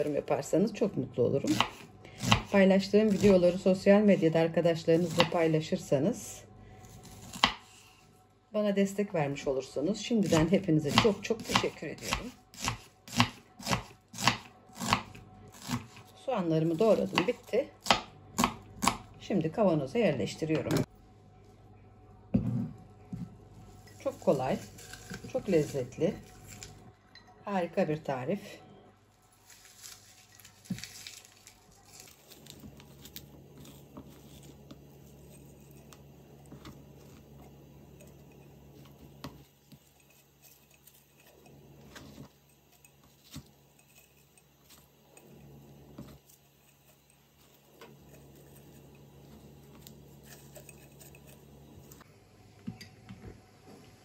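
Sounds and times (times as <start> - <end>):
low steady hum: 0.0 - 54.0
onion slices rustling: 1.4 - 5.8, 10.2 - 19.0, 23.6 - 26.9, 29.2 - 37.6, 38.2 - 45.2, 46.0 - 52.0.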